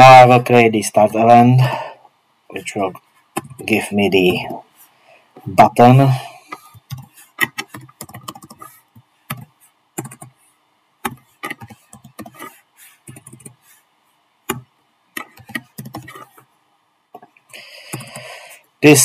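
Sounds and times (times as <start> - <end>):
keyboard typing clicks: 6.6 - 8.7, 9.3 - 10.3, 11.0 - 12.5, 13.1 - 13.6, 14.5 - 16.3.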